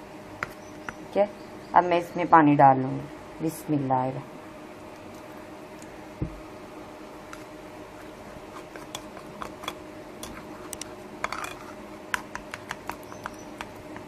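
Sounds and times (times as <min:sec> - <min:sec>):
faint steady hum: 0:00.0 - 0:14.0
metal spoon scraping a bowl: 0:08.2 - 0:11.8.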